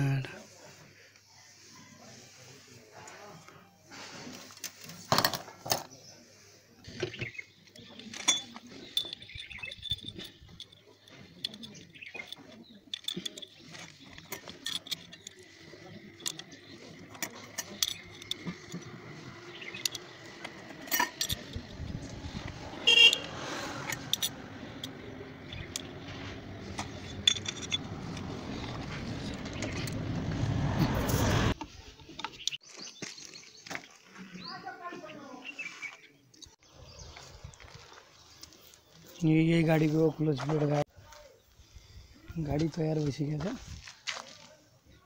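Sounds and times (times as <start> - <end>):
metal clutch parts clinking: 7.8 - 30.3.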